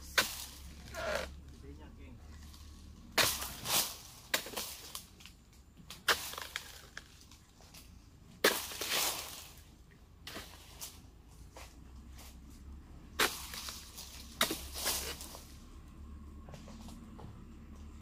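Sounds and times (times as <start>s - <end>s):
chisel chopping palm fronds: 0.0s - 11.0s, 13.0s - 15.7s.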